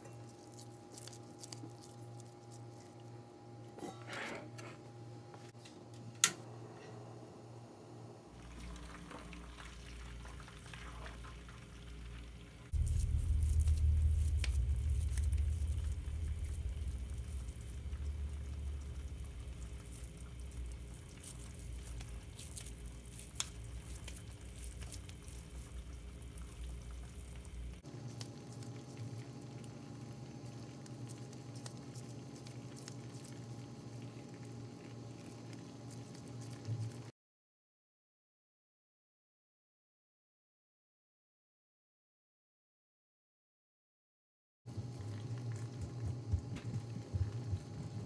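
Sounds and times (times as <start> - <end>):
onion sizzling in oil: 8.4 - 35.2
low rumble: 12.7 - 23.0.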